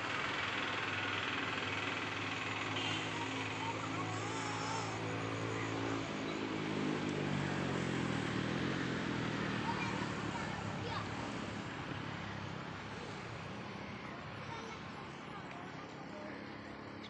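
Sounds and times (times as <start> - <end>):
steady outdoor hiss: 0.0 - 17.0
vehicle engine running: 0.0 - 17.0.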